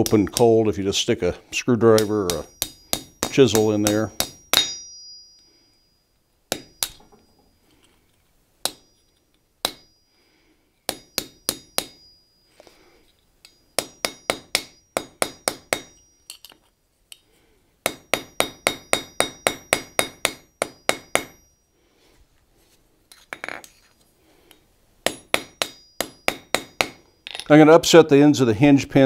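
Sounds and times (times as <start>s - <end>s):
hammer tapping on metal: 1.9s - 5.5s, 10.9s - 12.1s, 13.4s - 17.2s, 17.9s - 21.4s, 25.0s - 27.4s.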